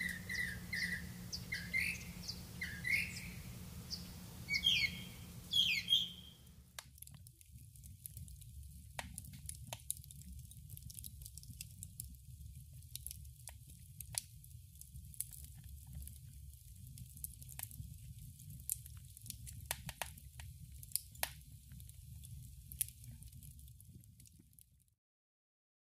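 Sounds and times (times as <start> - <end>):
low steady rumble: 0.0 - 5.5
campfire crackling and popping: 0.0 - 24.9.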